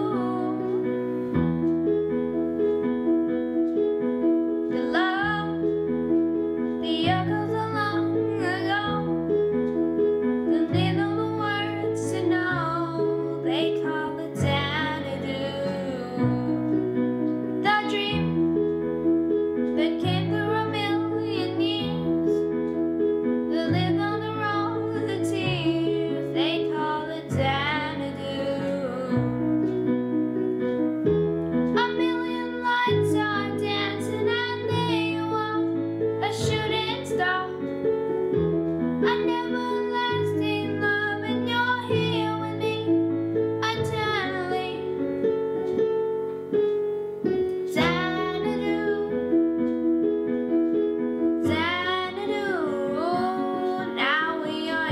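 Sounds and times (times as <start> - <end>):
digital piano chords: 0.0 - 54.9
boy singing: 31.8 - 35.6, 39.0 - 42.9, 47.8 - 49.2, 51.5 - 54.9.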